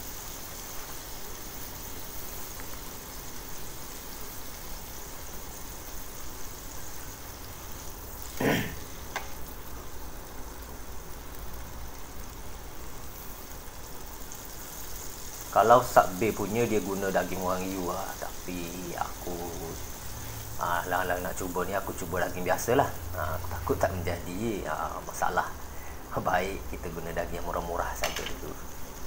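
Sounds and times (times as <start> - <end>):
meat sizzling in a frying pan: 0.0 - 29.0
person coughing: 8.4 - 8.9.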